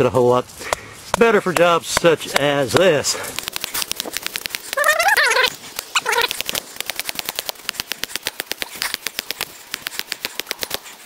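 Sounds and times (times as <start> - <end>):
hammer tapping wooden stake: 0.7 - 5.0, 5.8 - 11.0
cat meowing: 4.8 - 6.4.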